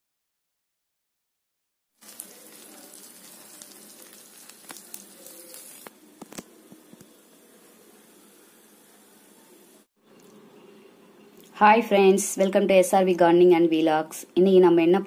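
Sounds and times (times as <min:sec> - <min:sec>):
food sizzling in hot oil: 0:02.0 - 0:09.9.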